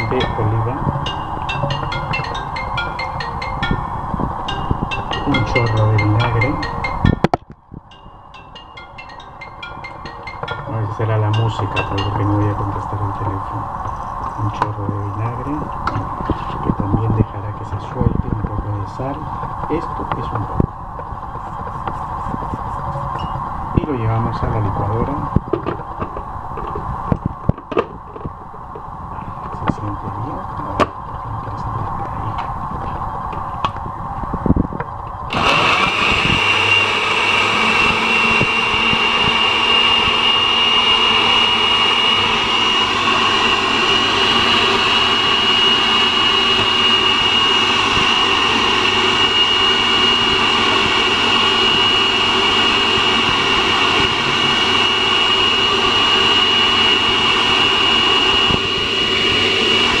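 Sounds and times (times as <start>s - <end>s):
blender running: 35.3s - 60.0s.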